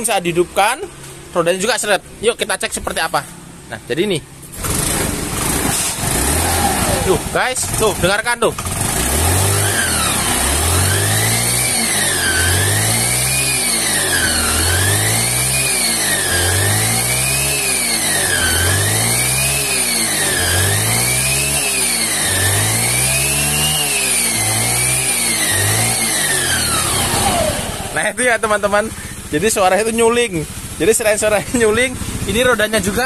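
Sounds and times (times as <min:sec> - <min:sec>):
scooter engine revving: 0:04.3 - 0:33.0
whistling gearbox whine: 0:11.6 - 0:16.4.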